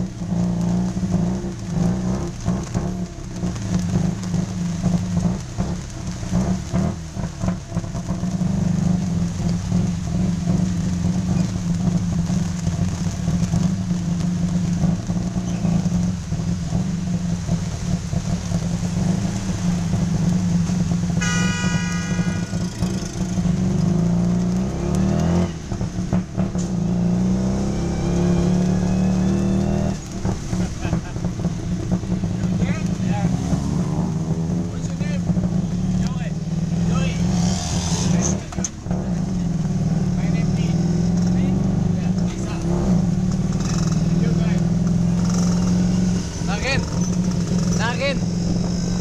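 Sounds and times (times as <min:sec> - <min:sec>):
short high tone: 0:21.2 - 0:23.5.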